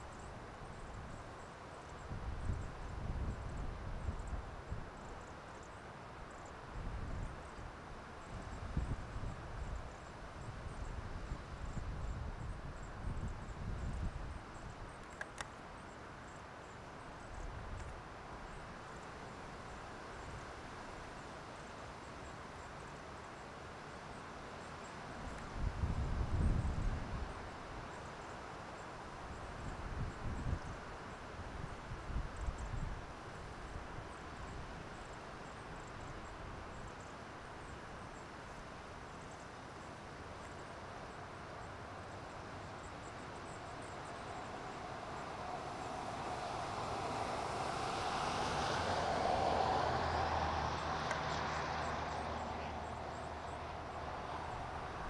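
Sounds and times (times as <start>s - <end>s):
outdoor background noise: 0.0s - 55.0s
roadside ambience: 0.0s - 55.0s
pickup truck road noise: 44.0s - 55.0s.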